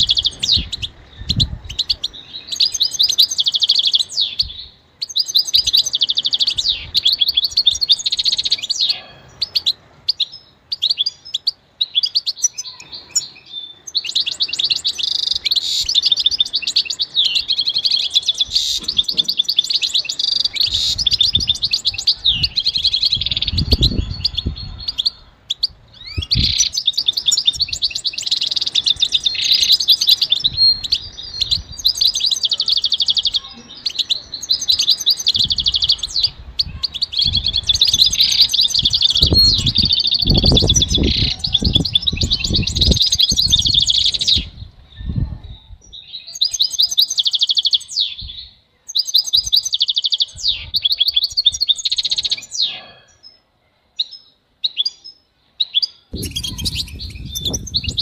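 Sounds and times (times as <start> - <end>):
finch twittering and trilling: 0.0 - 53.4, 54.0 - 58.0.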